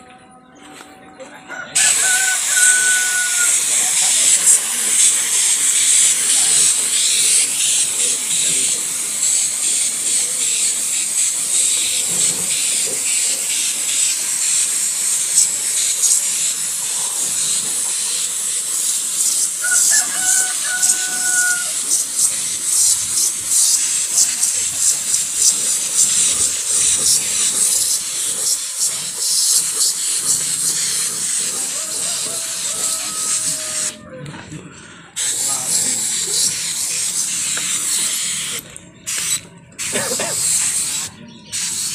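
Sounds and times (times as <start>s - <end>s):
rooster crowing: 1.5s - 3.8s, 19.6s - 21.9s, 31.4s - 34.3s
spray gun hissing: 1.8s - 34.0s, 35.2s - 41.9s.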